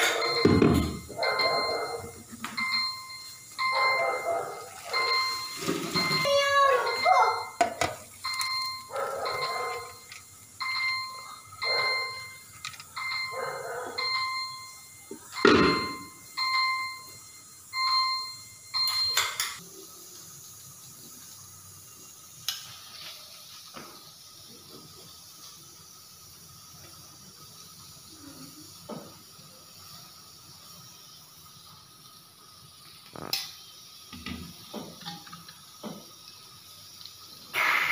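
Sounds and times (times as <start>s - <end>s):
dog barking: 0.0s - 2.2s, 3.7s - 5.3s, 8.9s - 9.9s, 11.6s - 12.2s, 13.3s - 14.1s
electronic beeper tone: 0.0s - 19.3s.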